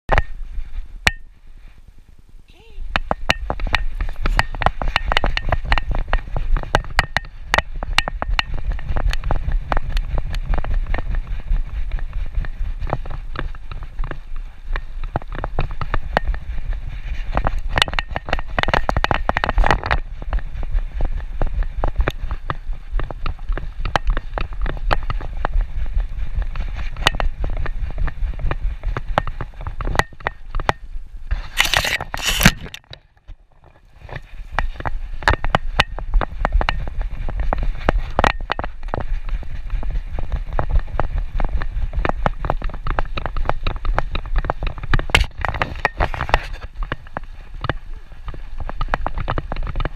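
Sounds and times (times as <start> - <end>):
camera mount scraping and knocking: 29.2 - 36.8, 42.9 - 47.8.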